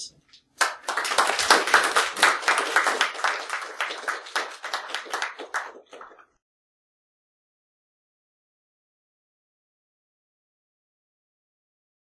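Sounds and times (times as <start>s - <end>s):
audience applauding: 0.6s - 6.4s.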